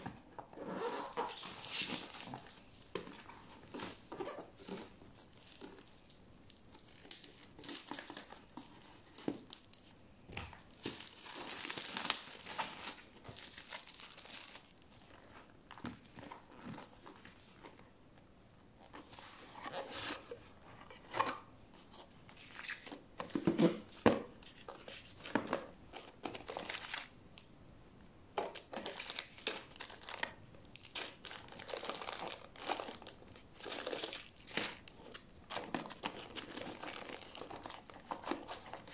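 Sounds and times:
plastic wrapping crinkling: 0.0s - 17.9s, 28.4s - 38.9s.

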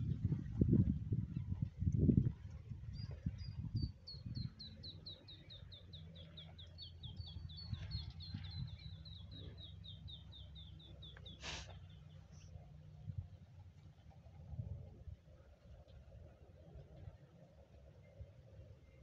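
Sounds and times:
brief hiss: 11.4s - 11.8s.

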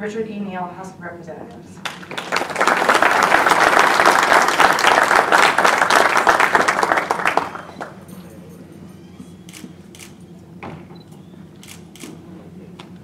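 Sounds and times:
audience applauding: 1.8s - 8.1s.

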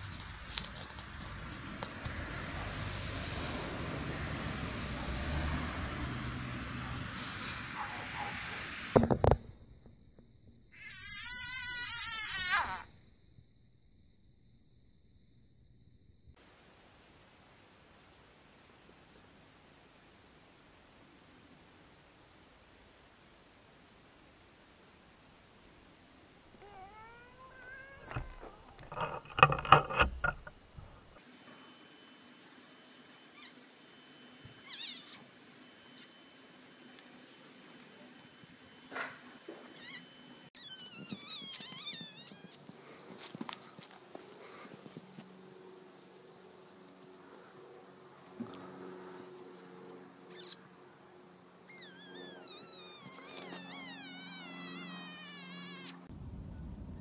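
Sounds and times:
animal cries: 10.8s - 12.9s, 26.6s - 28.2s, 33.3s - 33.6s, 34.6s - 35.3s, 39.8s - 42.6s, 50.3s - 50.6s, 51.7s - 56.1s
frog distress scream: 10.8s - 12.9s, 26.6s - 28.1s, 34.6s - 35.3s, 39.8s - 42.6s, 50.3s - 50.6s, 51.7s - 56.1s
faint short chirp: 31.4s - 36.4s.

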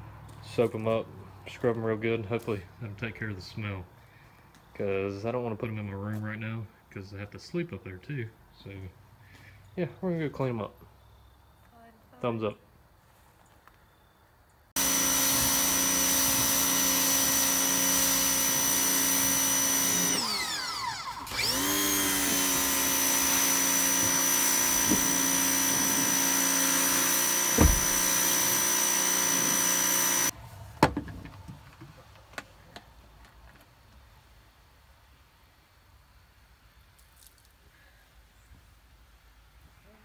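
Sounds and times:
pressure washer whining: 14.8s - 30.4s.

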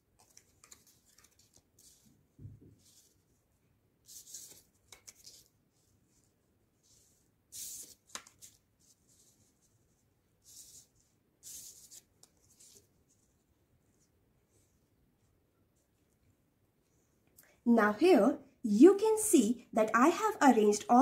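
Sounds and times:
paper rustling: 0.0s - 3.4s, 4.0s - 14.7s.

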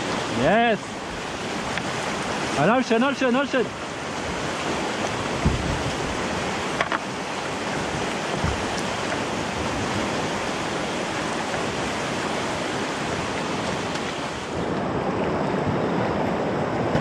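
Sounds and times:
wind noise on microphone: 3.8s - 17.0s
low thumps: 5.3s - 6.2s.

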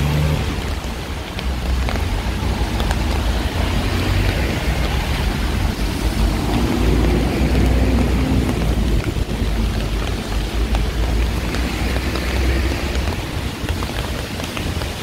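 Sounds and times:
heavy rain on street: 0.0s - 15.0s
traffic rumble: 0.0s - 15.0s
vehicle engine hum: 0.0s - 15.0s.

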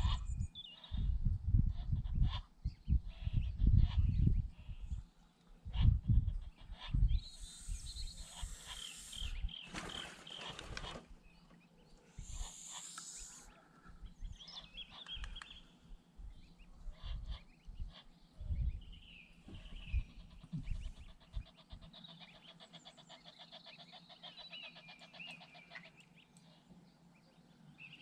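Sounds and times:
geese low rumbling calls: 0.0s - 11.2s, 12.0s - 26.7s
goslings peeping: 5.6s - 11.0s, 12.2s - 13.5s, 19.5s - 26.0s.

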